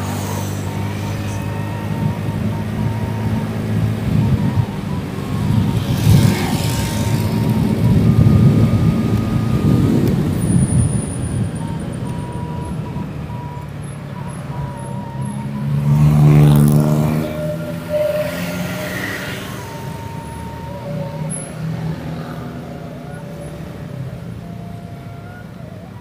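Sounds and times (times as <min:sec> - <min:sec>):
traffic noise: 0:00.0 - 0:26.0
motorcycle engine revving: 0:15.0 - 0:22.4.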